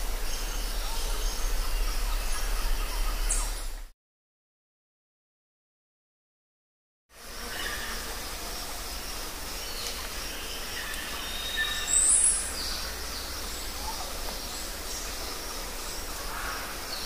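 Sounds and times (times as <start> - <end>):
steady background hiss: 7.2 - 17.0.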